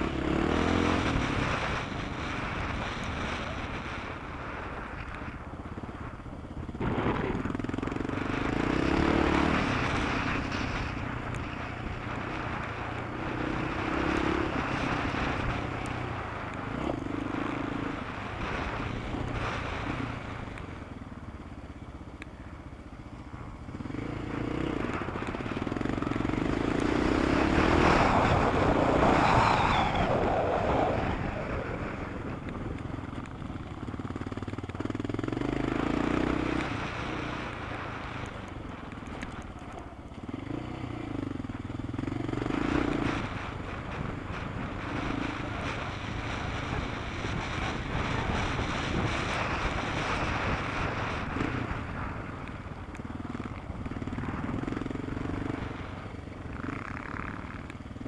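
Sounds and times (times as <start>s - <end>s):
loud rushing noise: 26.6s - 32.4s.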